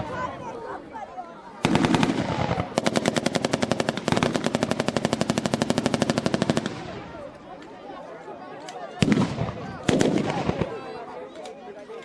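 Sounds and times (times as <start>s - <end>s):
machine gun firing bursts: 1.6s - 6.8s, 9.0s - 10.6s.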